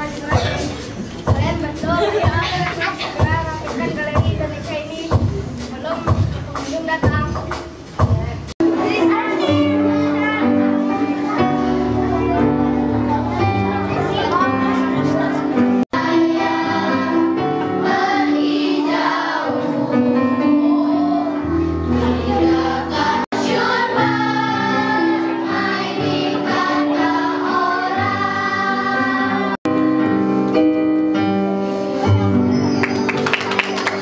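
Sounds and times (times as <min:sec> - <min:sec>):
musical accompaniment: 0:00.0 - 0:34.0
children's choir singing: 0:08.6 - 0:29.7.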